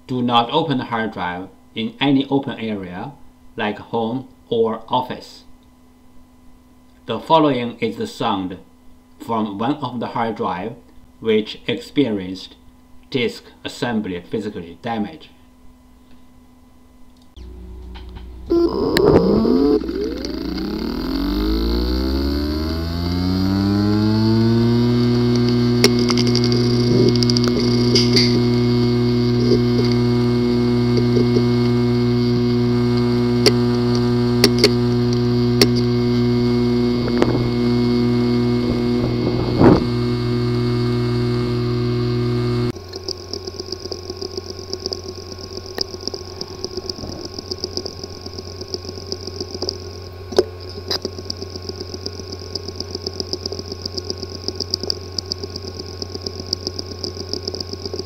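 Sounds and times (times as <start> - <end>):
hard drive buzzing: 15.7 - 58.0
hard drive clicks: 17.2 - 58.0
hard drive ticking rapidly: 17.4 - 58.0.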